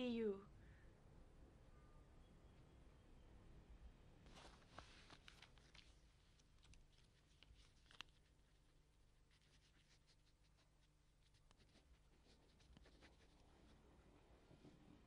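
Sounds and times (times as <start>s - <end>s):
pen scratching on paper: 9.4s - 13.5s.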